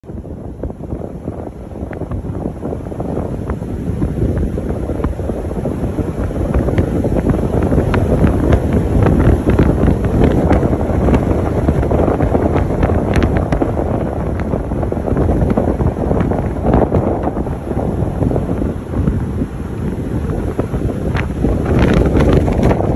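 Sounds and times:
wind buffeting microphone: 0.0 - 22.9.

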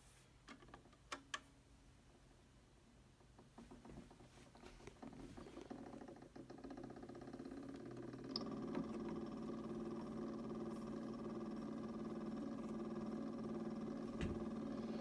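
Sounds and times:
phonograph whirring: 3.5 - 15.0.

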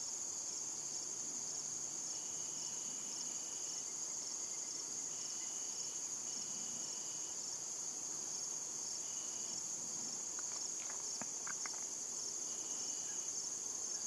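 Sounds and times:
crickets trilling: 0.0 - 14.0
lower insect trill: 0.0 - 14.0
faint clicks: 10.3 - 11.9.

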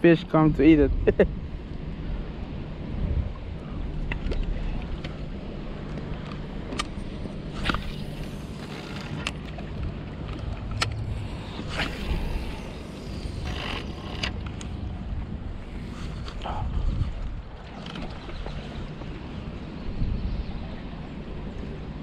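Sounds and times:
wind rumbling on microphone: 0.0 - 22.0
sea washing: 3.4 - 19.7.

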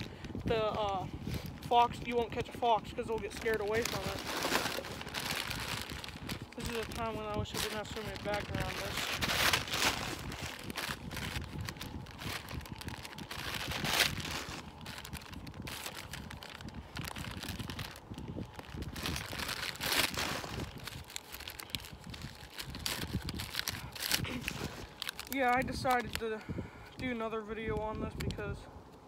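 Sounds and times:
plastic bag crinkling: 0.0 - 28.4.

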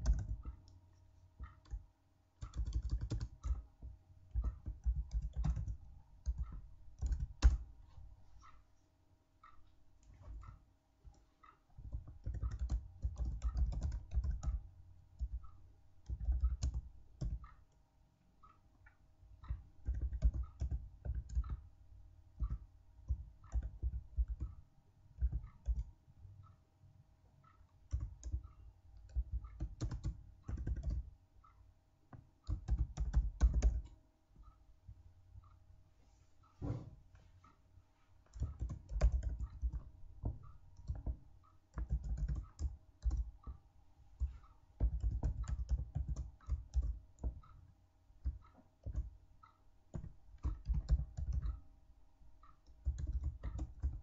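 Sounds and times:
computer keyboard typing: 0.0 - 0.7, 1.4 - 1.8, 2.4 - 7.6, 11.8 - 17.7, 19.4 - 21.7, 22.4 - 24.6, 25.2 - 25.9, 27.9 - 31.1, 32.4 - 33.9, 38.3 - 43.6, 44.2 - 49.2, 49.9 - 51.6, 52.4 - 54.0
faint steady hum: 0.0 - 54.0.

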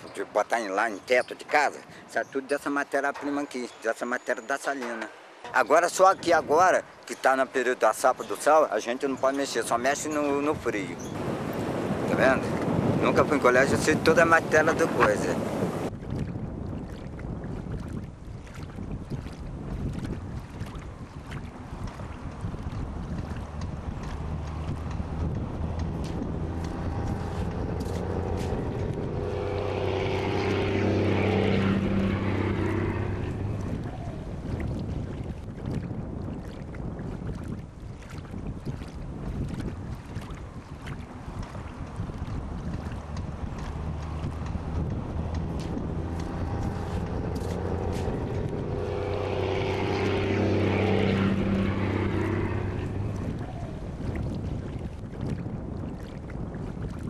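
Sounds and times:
wind: 0.0 - 57.0
motor droning hum: 11.0 - 15.9, 19.8 - 35.5, 41.1 - 55.1.

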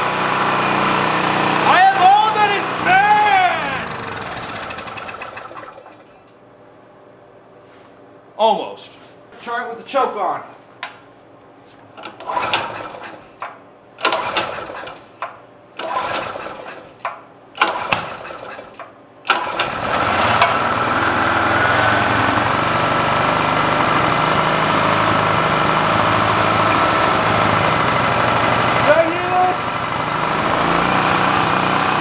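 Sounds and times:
generator engine running: 0.0 - 6.3, 12.0 - 15.2, 15.8 - 32.0
generator engine pull-starting: 0.0 - 6.4, 12.0 - 32.0.

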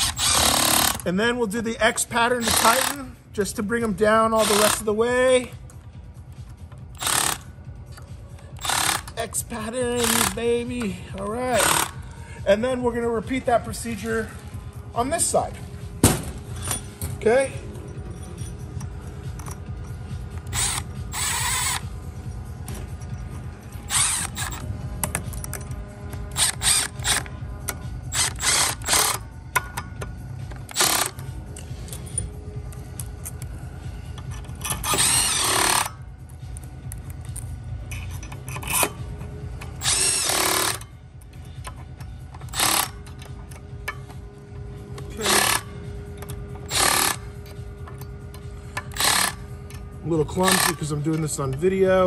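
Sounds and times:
impact driver running: 0.0 - 1.0, 2.4 - 3.1, 4.4 - 4.9, 7.0 - 7.5, 8.6 - 9.2, 9.9 - 10.4, 11.6 - 12.0, 20.4 - 21.9, 23.9 - 24.7, 26.2 - 27.4, 28.1 - 29.2, 30.7 - 31.2, 34.9 - 35.9, 39.8 - 40.8, 42.4 - 43.0, 45.2 - 45.7, 46.6 - 47.3, 48.8 - 49.5, 50.3 - 50.9.

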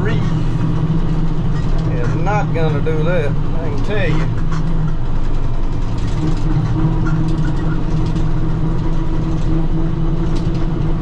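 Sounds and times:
tractor engine under load: 0.0 - 11.0.

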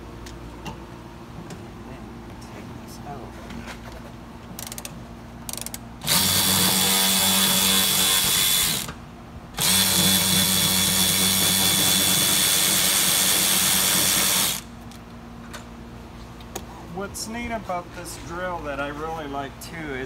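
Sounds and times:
impact wrench whining: 4.6 - 9.0, 9.6 - 14.7.

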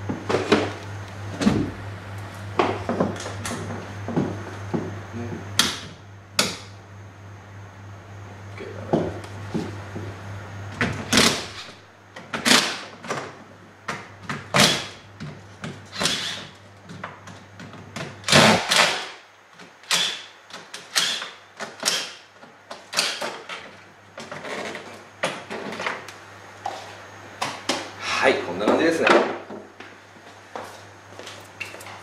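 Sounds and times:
low steady hum: 0.0 - 19.6.

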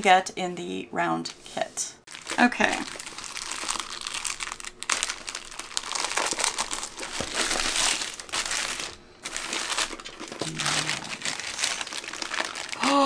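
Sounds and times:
plastic packaging crinkling: 2.1 - 13.0.

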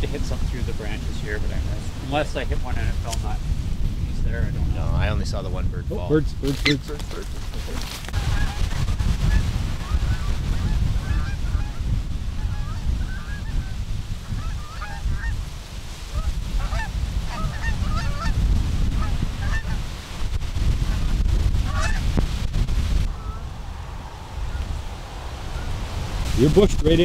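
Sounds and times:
wind rumbling on microphone: 0.0 - 27.0
geese honking: 8.1 - 15.4, 16.1 - 19.9, 20.9 - 22.1, 23.1 - 26.2.

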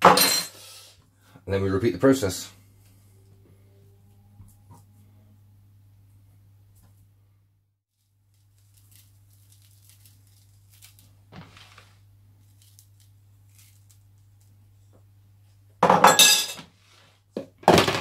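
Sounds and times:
low hum: 2.5 - 7.7
dry spice rustling onto meat: 8.2 - 14.6.

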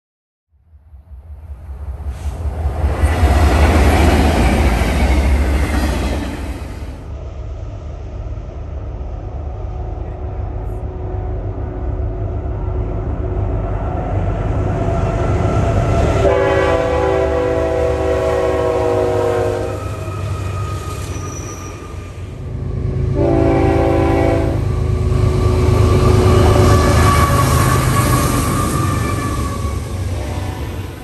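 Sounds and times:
train rumbling: 0.7 - 31.0
diesel locomotive horn: 16.1 - 20.3, 22.8 - 31.0.

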